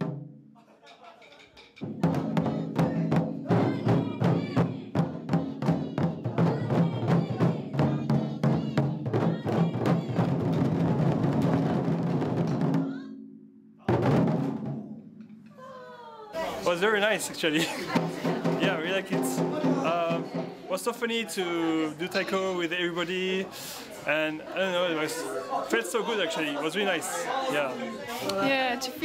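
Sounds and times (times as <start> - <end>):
taiko drums beating: 0.0 - 0.3, 1.6 - 13.2, 13.8 - 15.4, 17.6 - 20.7.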